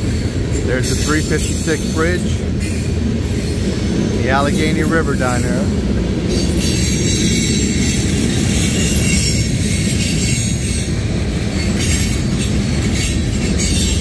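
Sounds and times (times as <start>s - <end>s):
freight train wheels rumbling: 0.0s - 14.0s.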